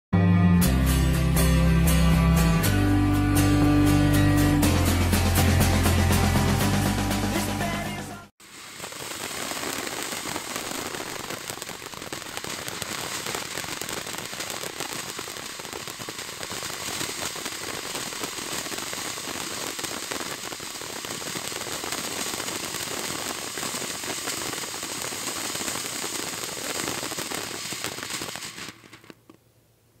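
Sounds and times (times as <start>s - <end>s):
firework fountain hissing and crackling: 6.2s - 29.4s.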